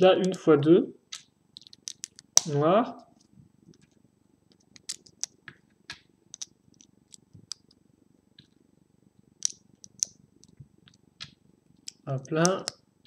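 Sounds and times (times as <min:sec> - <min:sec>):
plastic pieces clicking: 0:01.1 - 0:02.5, 0:04.7 - 0:05.5, 0:09.4 - 0:10.6.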